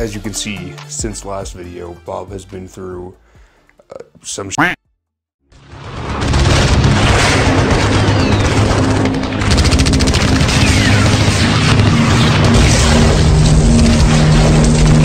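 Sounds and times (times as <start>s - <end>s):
music: 0.0s - 5.0s, 5.6s - 15.0s
booming explosions: 5.6s - 15.0s
rapid gunfire: 5.6s - 15.0s.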